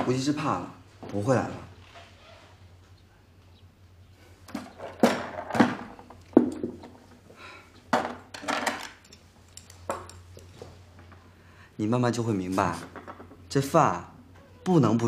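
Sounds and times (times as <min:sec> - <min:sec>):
dishes clinking on wooden table: 0:04.6 - 0:07.0, 0:07.9 - 0:10.5.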